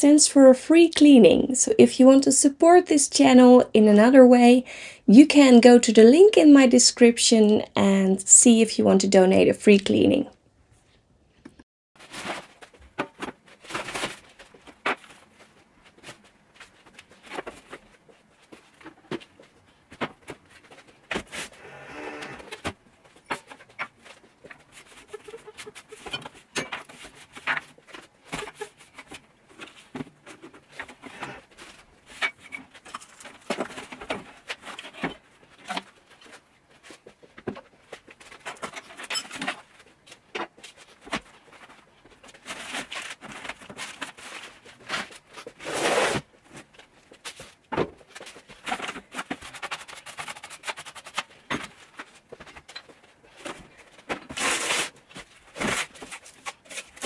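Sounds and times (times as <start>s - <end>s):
household objects clicking and knocking: 22.5s - 36.4s.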